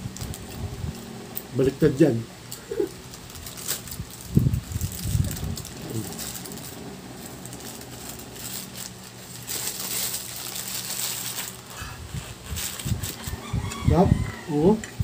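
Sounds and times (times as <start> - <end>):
paper wrapper rustling: 2.5 - 14.4.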